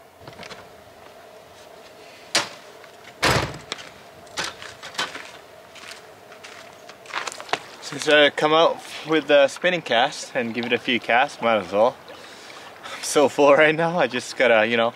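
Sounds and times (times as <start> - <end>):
door opening and shutting: 3.2 - 5.2.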